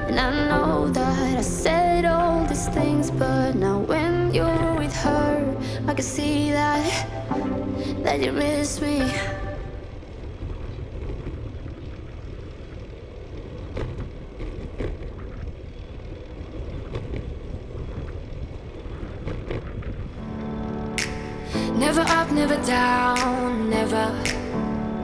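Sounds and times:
music: 0.0s - 9.9s, 20.2s - 25.0s
wind rumbling on microphone: 0.0s - 25.0s.

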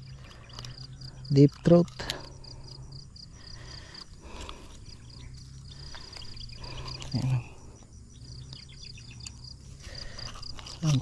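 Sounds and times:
insects chirping trill: 0.0s - 11.0s
pliers handling noise: 0.5s - 2.3s.

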